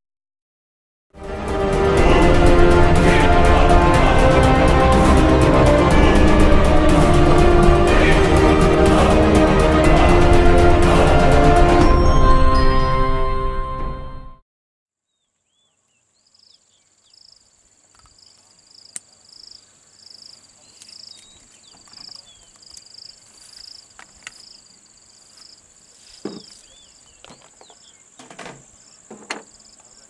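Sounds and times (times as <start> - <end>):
insects droning: 15.5 - 30.0
rhythmic insect chirp: 16.1 - 30.0.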